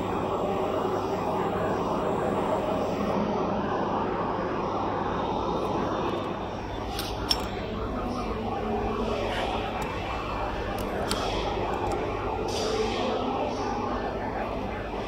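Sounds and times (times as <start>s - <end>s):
workshop machinery humming: 0.0s - 15.0s.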